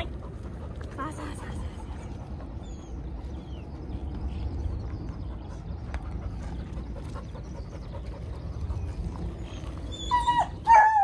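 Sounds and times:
steady low rumble: 0.0 - 11.0
dog whining: 9.4 - 11.0.

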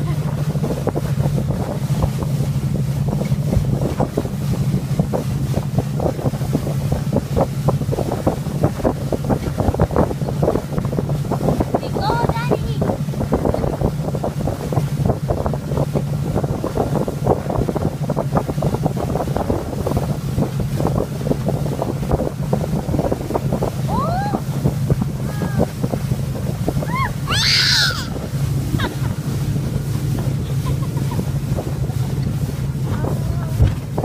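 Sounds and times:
motorboat engine drone: 0.0 - 34.0
wind buffeting microphone: 0.0 - 34.0
toddler squealing: 26.9 - 28.2.

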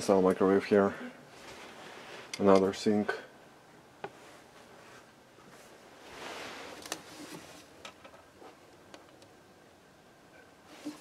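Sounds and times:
faint rustling: 1.0 - 2.7, 4.0 - 8.8.

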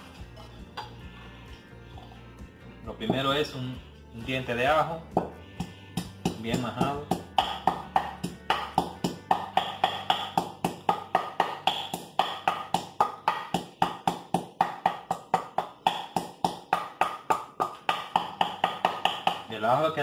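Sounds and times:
wooden pestle pounding in mortar: 5.1 - 19.8.

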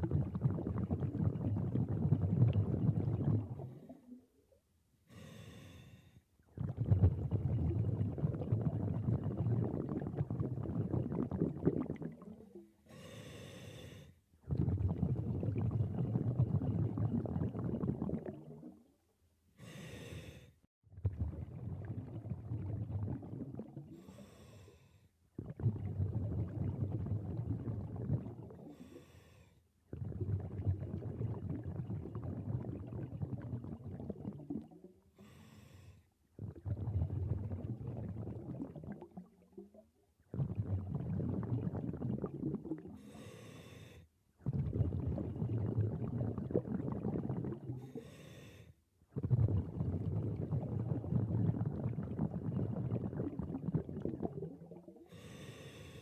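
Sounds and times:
exhaled bubbles burbling: 0.0 - 4.4, 6.4 - 12.8, 14.4 - 19.0, 20.9 - 24.2, 25.3 - 28.9, 29.9 - 35.4, 36.3 - 43.2, 44.4 - 48.1, 49.1 - 56.0
regulator inhale hiss: 5.1 - 6.2, 12.9 - 14.2, 19.6 - 20.6, 24.0 - 25.1, 28.7 - 29.6, 35.2 - 36.1, 43.0 - 44.1, 47.8 - 48.8, 55.1 - 56.0.

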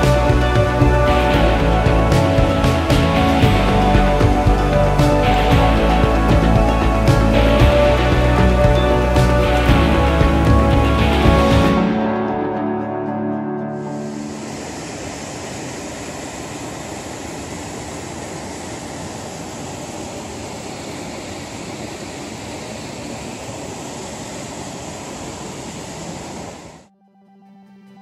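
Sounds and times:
rushing water: 0.0 - 12.6, 13.7 - 26.9.

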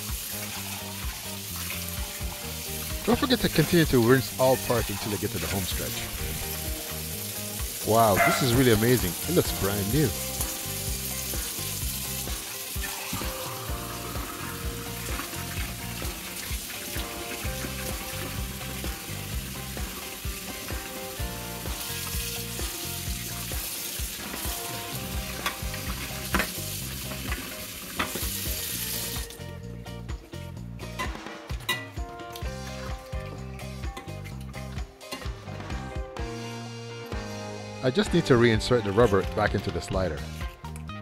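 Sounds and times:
tap water running into sink: 0.0 - 29.4
faint background music: 0.0 - 41.0.

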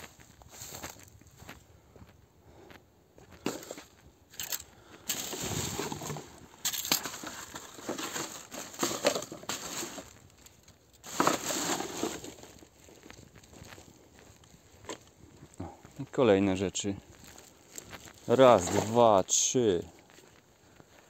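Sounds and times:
plastic bag crinkling: 4.4 - 13.0.

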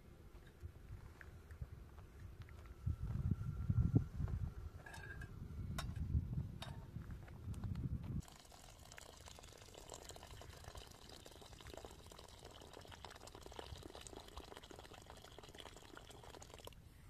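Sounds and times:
water trickling into metal bowl: 8.2 - 16.8.

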